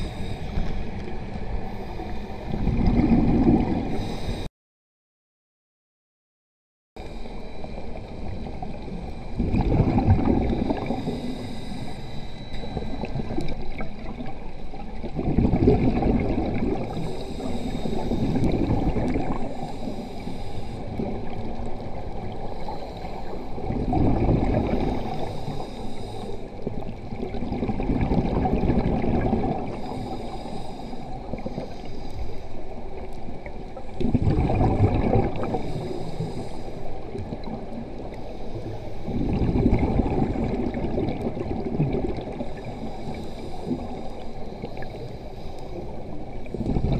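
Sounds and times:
regulator hissing on inhale: 0.0s - 1.0s, 1.6s - 2.6s, 3.9s - 4.5s, 10.4s - 13.4s, 16.8s - 23.7s, 24.8s - 26.8s, 29.7s - 33.0s, 35.4s - 37.2s, 38.0s - 39.4s, 42.4s - 46.9s
diver exhaling bubbles: 2.5s - 4.2s, 9.4s - 11.4s, 15.0s - 19.6s, 23.6s - 25.3s, 27.1s - 30.1s, 33.9s - 36.5s, 39.1s - 42.7s, 46.5s - 46.9s.

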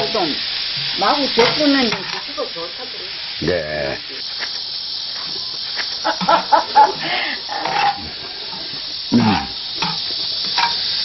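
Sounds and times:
radish sizzling in oil: 0.0s - 11.0s
low voices: 3.4s - 4.2s.

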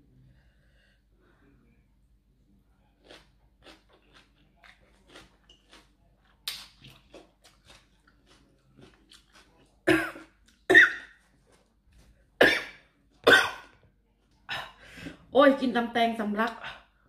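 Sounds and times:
chewing with wet mouth clicks: 3.0s - 9.8s
woman coughing: 9.9s - 11.1s, 12.4s - 13.7s.

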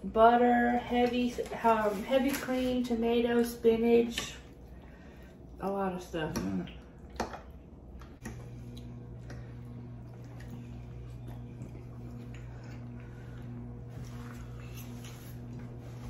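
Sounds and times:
steady low hum: 0.0s - 16.0s
chewing and mouth noises: 6.3s - 13.5s.

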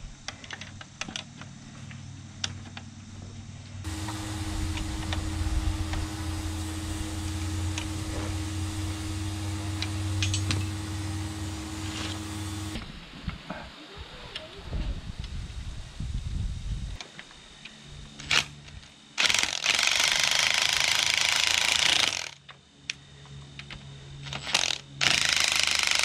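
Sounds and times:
power tool motor running: 3.8s - 12.8s.

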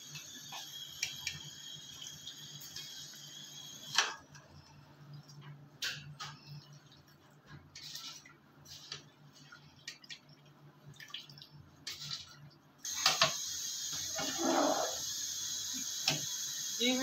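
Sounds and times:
ladle stirring and scraping pot: 7.7s - 9.5s, 11.8s - 12.4s, 14.2s - 15.0s.

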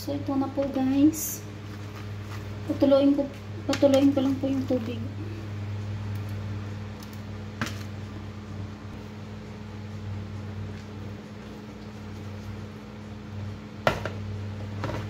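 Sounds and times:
low mechanical hum: 0.0s - 15.0s.

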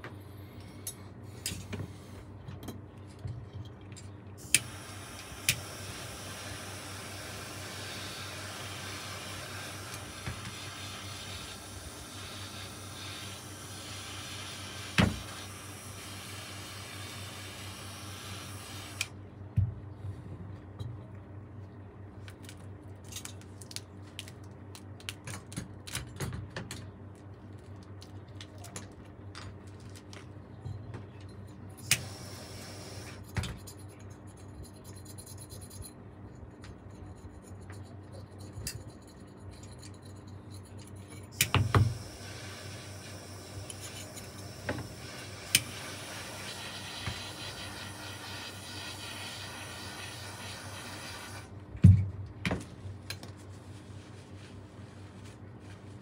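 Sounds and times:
steady low hum: 0.0s - 56.0s
steady hiss: 4.4s - 19.1s, 41.4s - 51.5s
metal parts clicking and scraping: 33.2s - 41.4s.

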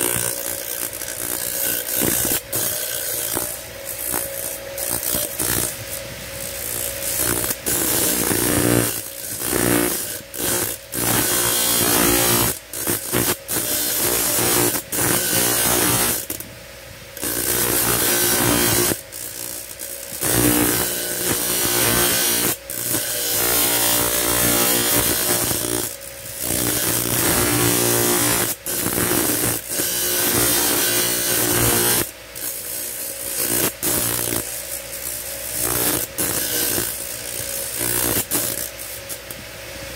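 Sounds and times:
motor hum: 0.0s - 39.9s.

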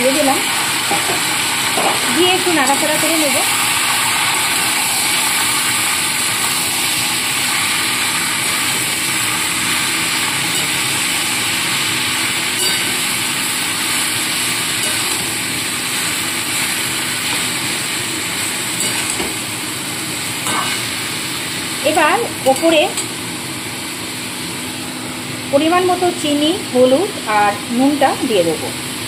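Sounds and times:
food sizzling in oil: 0.0s - 29.0s
metal spatula scraping wok: 12.6s - 13.2s, 14.7s - 15.4s, 18.8s - 19.2s, 20.4s - 20.9s.

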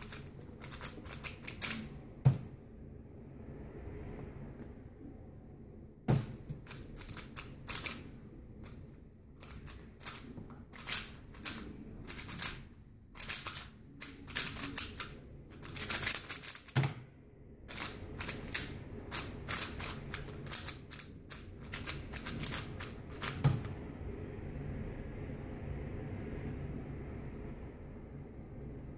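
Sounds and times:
puzzle cube clicking turns: 0.0s - 2.5s, 6.1s - 17.0s, 17.7s - 23.8s.

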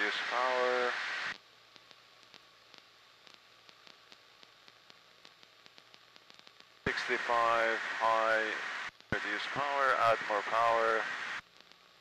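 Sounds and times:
faint irregular ticks: 1.3s - 7.2s, 11.3s - 12.0s.

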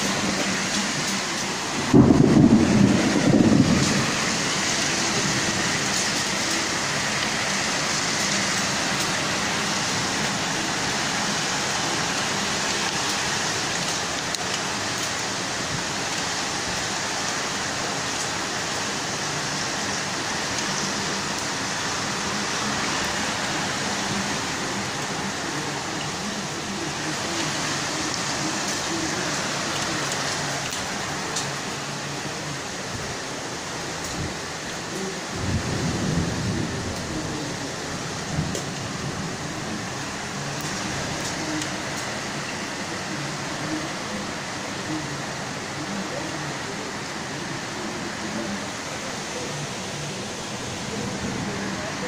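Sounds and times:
heavy rain pouring: 0.0s - 52.0s
low rumble: 1.8s - 4.3s.

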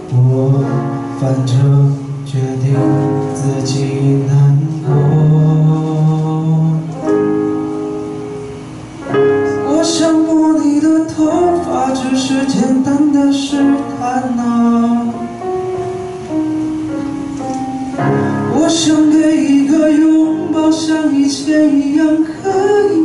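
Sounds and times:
man singing into a microphone: 0.0s - 7.2s, 9.5s - 15.5s, 18.2s - 23.0s
keyboard: 0.0s - 23.0s.

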